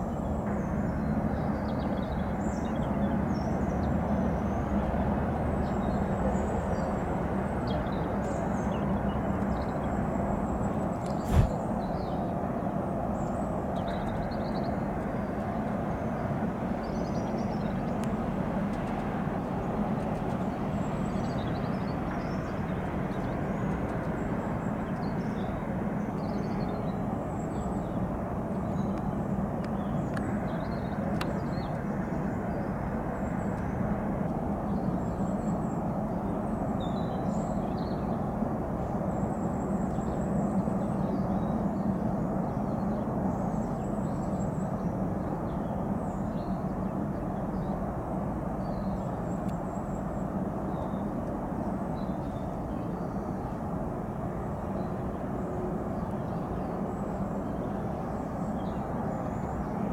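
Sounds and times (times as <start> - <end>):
distant jet engines rumbling: 11.1 - 11.7.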